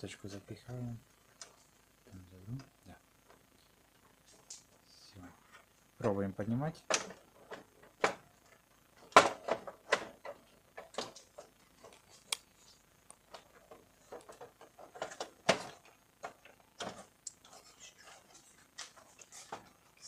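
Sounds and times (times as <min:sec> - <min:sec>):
plastic parts clicking and knocking: 0:06.8 - 0:12.5, 0:13.1 - 0:17.5.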